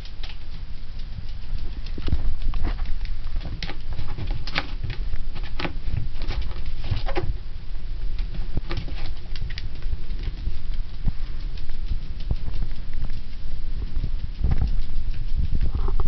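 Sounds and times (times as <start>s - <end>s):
dog claws pattering on floor: 0.0s - 7.4s, 8.0s - 16.0s
steady low rumble: 0.0s - 16.0s.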